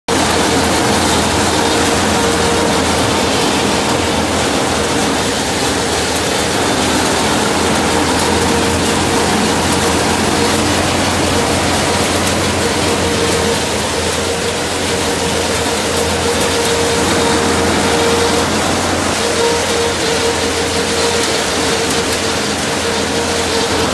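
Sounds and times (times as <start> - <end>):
harvester rollers and chopper running: 0.1 - 23.9
tractor engine: 0.1 - 23.9.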